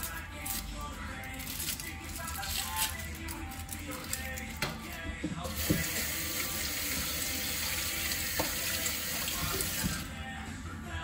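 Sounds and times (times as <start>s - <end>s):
tap water running into sink: 5.5s - 10.1s.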